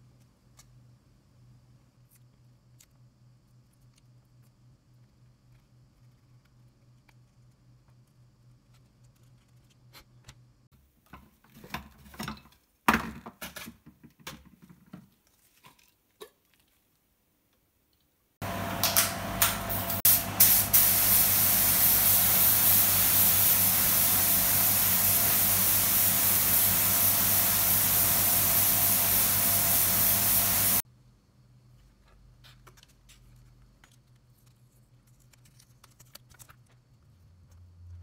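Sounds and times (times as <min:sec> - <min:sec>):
spray gun hissing: 0:19.6 - 0:30.8.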